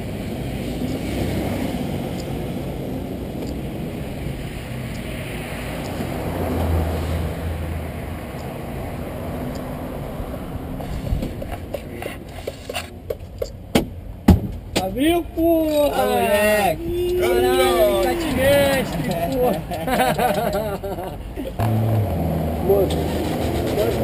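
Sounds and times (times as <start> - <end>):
vehicle passing with low rumble: 0.0 - 11.7
road traffic rushing past: 0.0 - 24.0.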